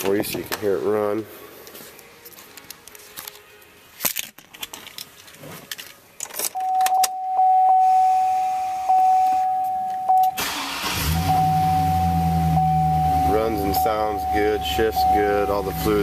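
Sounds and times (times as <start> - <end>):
keys jingling: 2.4 - 7.2
high-pitched warning chime: 6.6 - 16.0
engine starter cranking: 10.4 - 11.4
car engine idling: 10.4 - 16.0.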